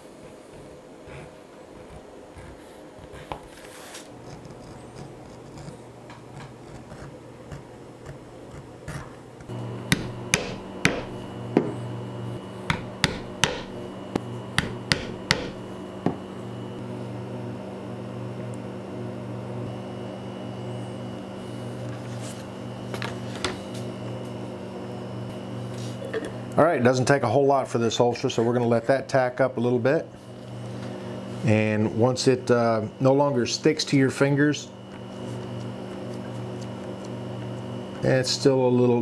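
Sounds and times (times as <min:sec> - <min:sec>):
mallet tapping leather tool: 0:12.7 - 0:13.7, 0:14.6 - 0:15.6.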